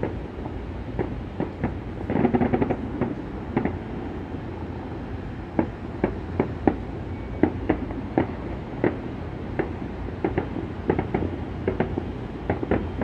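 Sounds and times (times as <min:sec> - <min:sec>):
distant fireworks bangs: 0:01.0 - 0:03.9, 0:05.5 - 0:13.0
fireworks crackles: 0:01.0 - 0:03.9.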